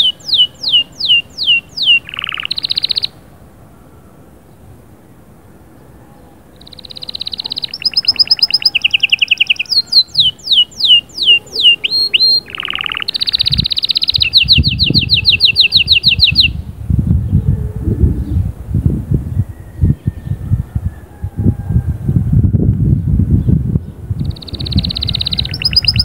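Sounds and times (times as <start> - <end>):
canary singing: 0.0 - 3.2, 6.1 - 16.6, 24.2 - 26.0
low rumbling noise: 13.4 - 26.0.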